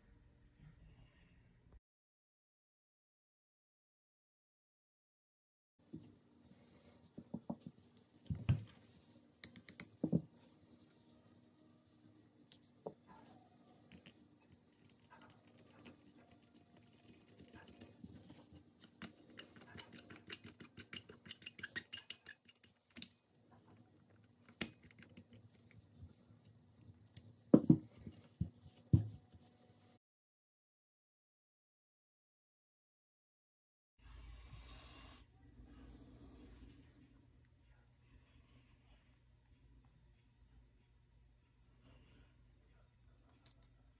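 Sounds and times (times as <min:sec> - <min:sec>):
small metal clicks and scrapes: 0:13.9 - 0:23.2.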